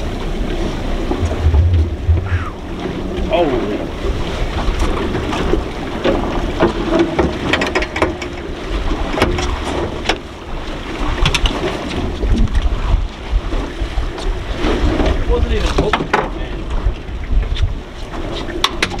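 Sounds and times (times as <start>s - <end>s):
low rumble of boat and water: 0.0s - 19.0s
wind buffeting microphone: 0.0s - 19.0s
sharp knocks and clicks: 6.6s - 8.5s.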